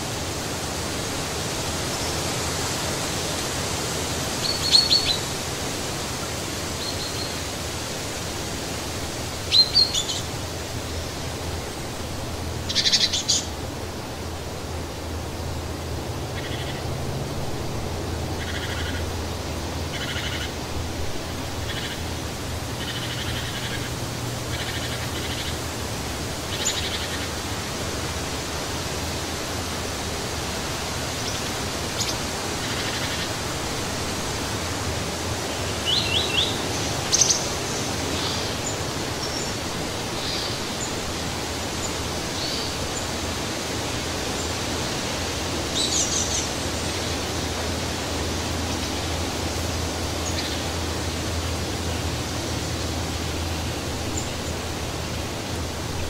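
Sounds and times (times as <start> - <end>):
wind rushing through trees: 0.0 - 56.0
birds chirping: 35.5 - 41.0.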